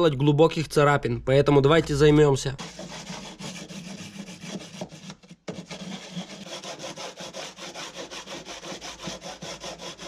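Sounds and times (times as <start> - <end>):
sandpaper rubbing back and forth: 2.6 - 10.0.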